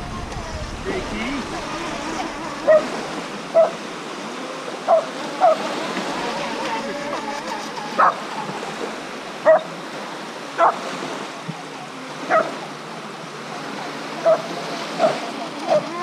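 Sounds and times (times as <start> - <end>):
small waves lapping on shore: 0.0 - 16.0
dog barking: 2.7 - 2.9, 3.5 - 3.8, 4.9 - 5.6, 9.4 - 9.7, 10.6 - 10.8, 12.3 - 12.5, 14.2 - 14.4.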